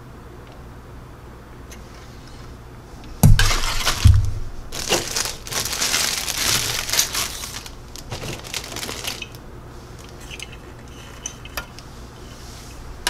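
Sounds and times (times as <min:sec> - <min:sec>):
knocks on plastic sprues: 0:03.2 - 0:09.2
plastic crackling and crinkling: 0:03.2 - 0:11.9.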